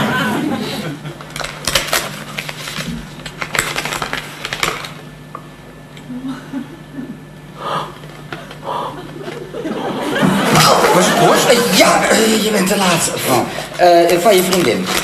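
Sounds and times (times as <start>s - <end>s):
paper envelope rustling: 1.2s - 5.0s, 13.7s - 15.0s.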